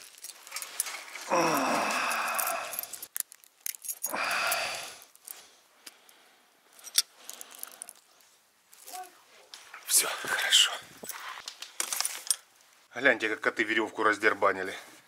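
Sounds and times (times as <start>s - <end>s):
metal chain clinking: 0.0s - 1.3s, 1.9s - 5.3s, 6.7s - 8.1s.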